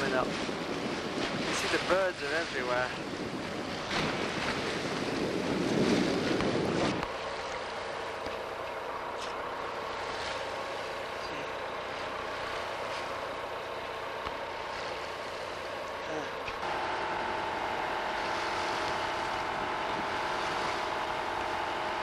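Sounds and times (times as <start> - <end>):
wind buffeting microphone: 0.0 - 7.2, 16.6 - 22.0
rushing sea water: 0.0 - 22.0
mechanical hum with faint tones: 6.4 - 22.0.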